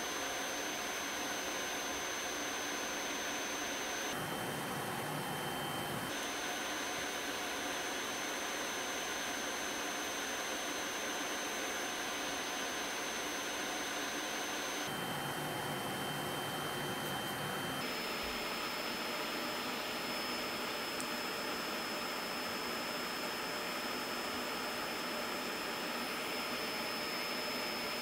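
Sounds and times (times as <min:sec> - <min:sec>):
electric nail drill whining: 0:00.0 - 0:04.2.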